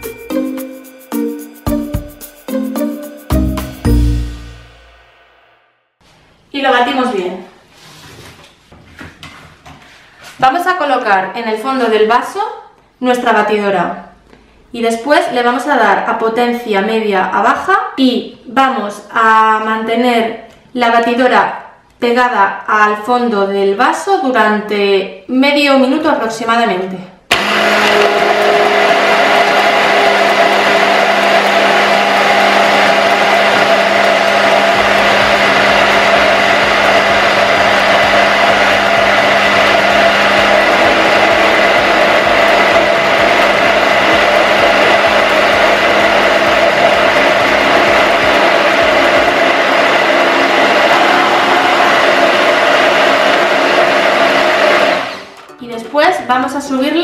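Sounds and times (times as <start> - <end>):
stick blender motor whine: 27.3 - 55.5.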